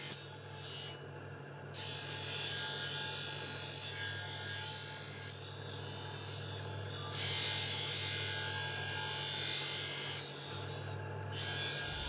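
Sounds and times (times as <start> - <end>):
grinding wheel humming: 5.9 - 12.0
blade grinding hiss: 7.0 - 12.0.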